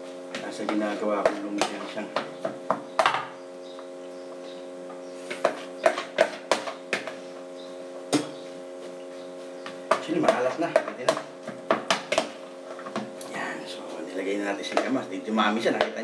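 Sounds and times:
steady multi-tone hum: 0.0 - 16.0
kitchenware knocks and clicks: 9.9 - 13.1.

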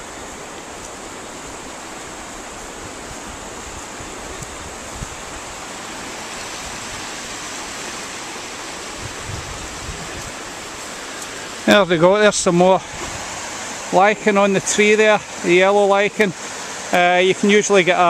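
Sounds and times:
flowing river water: 0.0 - 18.0
wind buffeting microphone: 2.4 - 5.7, 8.8 - 10.8, 11.8 - 13.4.

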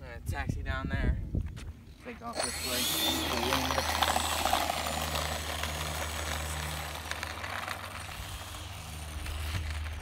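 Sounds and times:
electric ducted fan running: 2.3 - 10.0.

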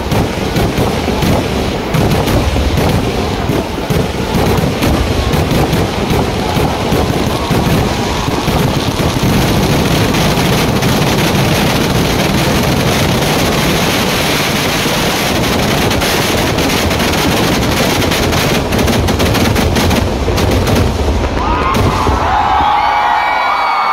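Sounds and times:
fireworks explosions crackling: 0.0 - 23.9.

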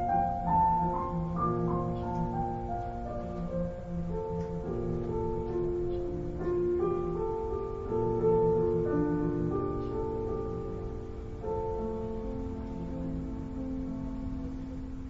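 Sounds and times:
piano playing slow gentle melody: 0.0 - 15.0.

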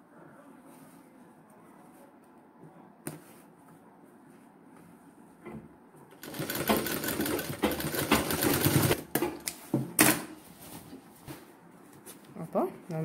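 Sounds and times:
sewing machine stitching: 6.1 - 9.0
sewing machine clicks: 6.2 - 9.0.

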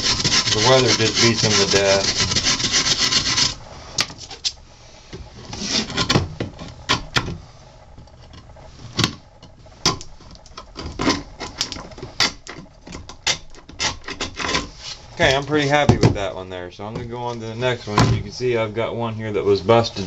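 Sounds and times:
wire brush scrubbing wood: 0.0 - 3.6.

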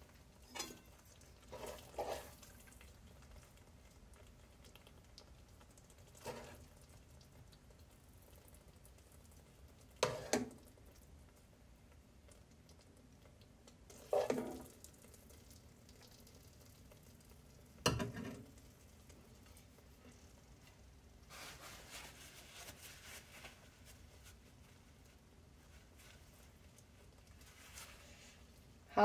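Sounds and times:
spoon clanking on metal pans: 0.4 - 2.4, 10.0 - 10.6, 17.8 - 18.5.

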